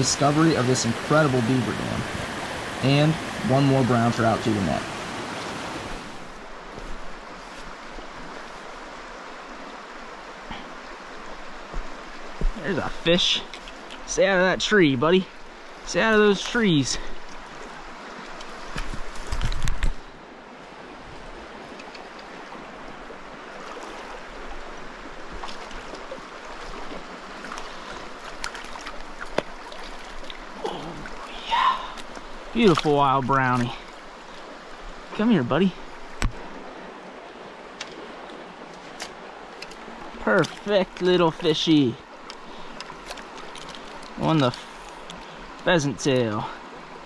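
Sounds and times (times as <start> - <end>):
water spilling through dam: 0.0 - 6.4, 25.4 - 34.3
small stream flowing: 0.0 - 47.0.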